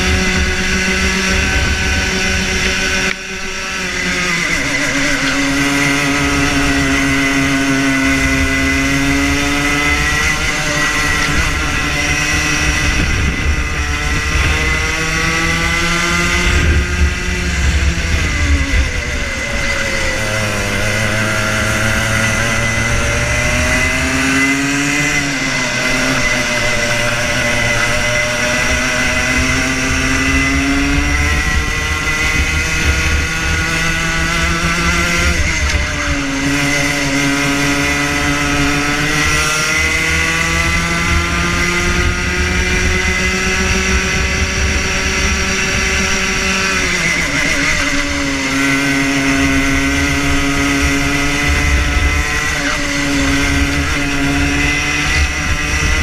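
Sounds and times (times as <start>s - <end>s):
kart engine at racing revs: 0.0s - 56.0s.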